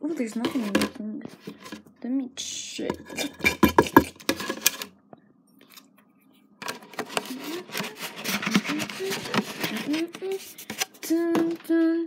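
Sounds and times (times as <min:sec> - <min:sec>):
objects knocking and rattling: 0:00.3 - 0:01.8, 0:02.9 - 0:04.9
shuffling and rustling: 0:06.6 - 0:12.0.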